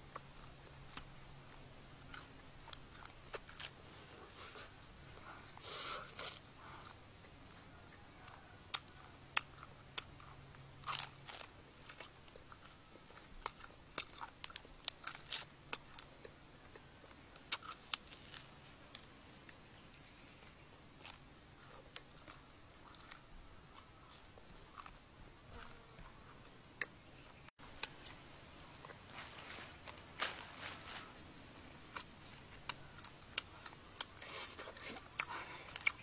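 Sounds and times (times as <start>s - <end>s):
person chewing meat: 0.0s - 19.6s, 20.4s - 26.2s, 31.8s - 36.0s
crunchy bites: 0.1s - 19.6s, 20.4s - 26.1s.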